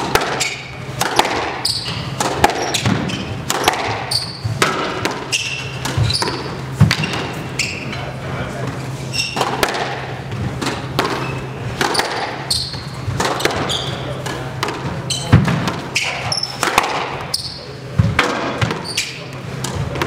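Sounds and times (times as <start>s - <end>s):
squash ball knocks: 0.0s - 7.4s, 9.4s - 11.2s, 11.8s - 12.5s, 13.1s - 17.3s
shoes squeaking on floor: 0.3s - 0.8s, 1.5s - 8.2s, 8.8s - 9.6s, 11.1s - 16.6s, 17.2s - 17.8s, 18.6s - 19.3s.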